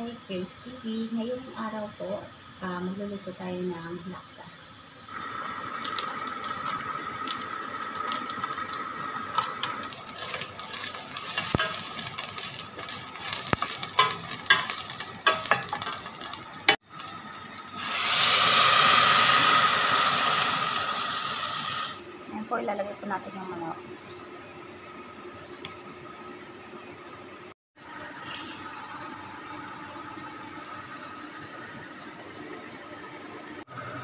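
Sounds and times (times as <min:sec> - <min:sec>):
paste sizzling in a pan: 0:09.8 - 0:16.8, 0:17.6 - 0:22.0.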